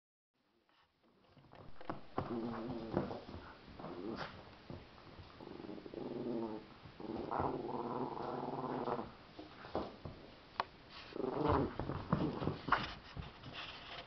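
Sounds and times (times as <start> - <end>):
dog growling in play: 1.8 - 4.5, 5.2 - 10.0, 11.1 - 12.8.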